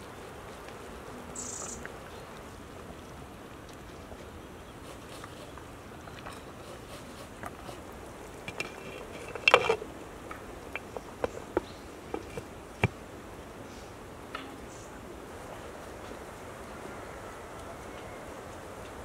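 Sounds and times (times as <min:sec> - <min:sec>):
glass lid clattering on metal pot: 0:08.4 - 0:09.8.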